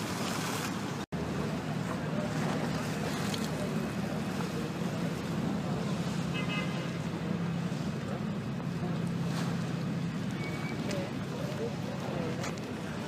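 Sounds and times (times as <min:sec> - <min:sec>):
choppy water: 0:00.0 - 0:13.0
wind: 0:00.0 - 0:13.0
low engine drone: 0:00.8 - 0:13.0.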